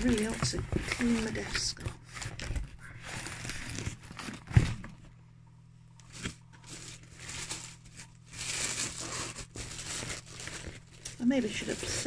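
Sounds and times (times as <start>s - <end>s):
packaging crinkling and rustling: 0.0s - 5.2s, 6.0s - 12.0s.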